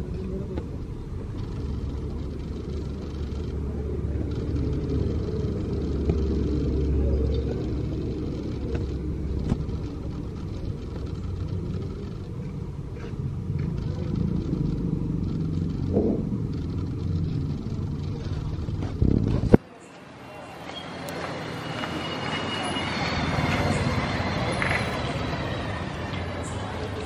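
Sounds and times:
street background rumble: 0.0s - 27.0s.

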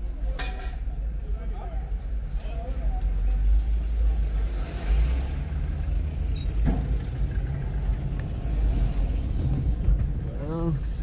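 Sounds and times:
car engine and road rumble: 0.0s - 11.0s.

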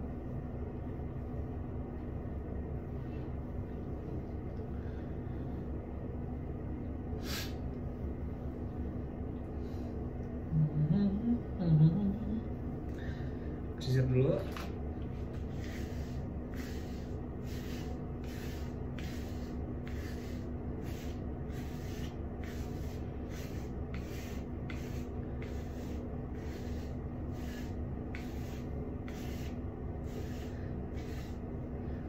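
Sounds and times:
low hum: 0.0s - 32.0s
brush strokes through hair: 15.3s - 31.5s.

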